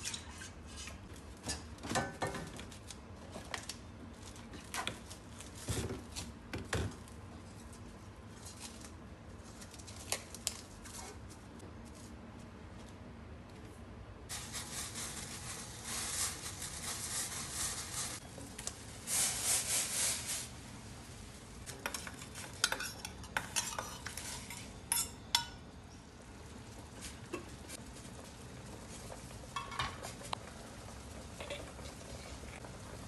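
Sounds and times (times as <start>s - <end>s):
gas stove hissing: 14.3s - 33.0s
utensil clinking on metal saucepan: 21.7s - 25.6s.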